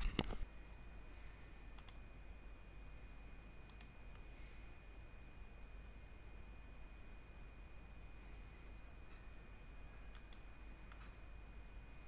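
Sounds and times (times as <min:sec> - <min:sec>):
computer mouse clicks: 0:01.7 - 0:02.0, 0:03.7 - 0:04.2, 0:10.0 - 0:11.1.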